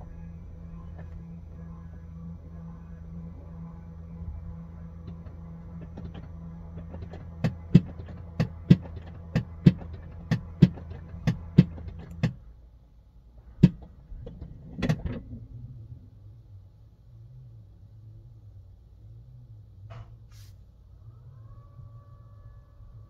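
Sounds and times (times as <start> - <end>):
low machine hum: 0.0 - 23.0.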